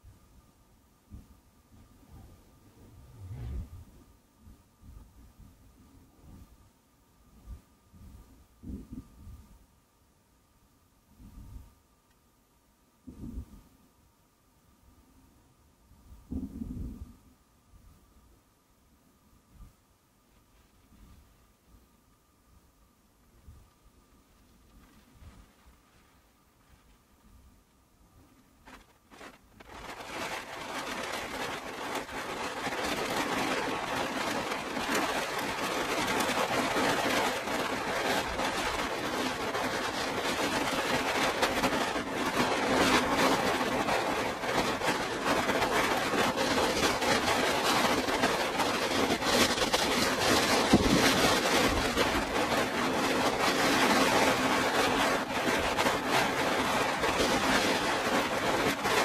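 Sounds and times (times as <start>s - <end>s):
heavy rain on a car roof: 28.6s - 59.0s.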